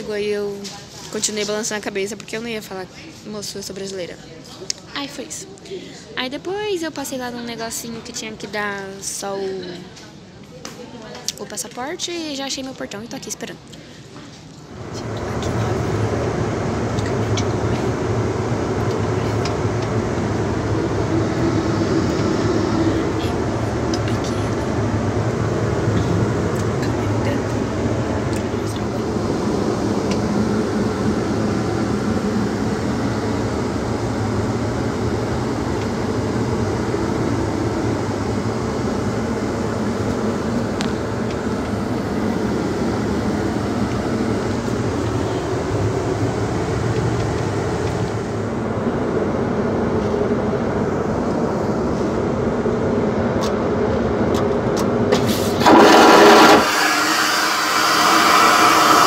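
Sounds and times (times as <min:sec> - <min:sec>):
airliner cabin drone: 0:13.8 - 0:59.0
vacuum toilet flushing: 0:14.7 - 0:49.1, 0:55.0 - 0:59.0.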